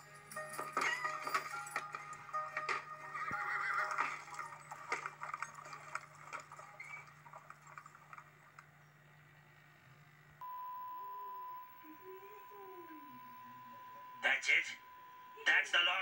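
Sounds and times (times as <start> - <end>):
hooves clip-clopping: 0.6 - 8.6
horse whinnying: 3.1 - 4.3
steady low hum: 7.9 - 16.0.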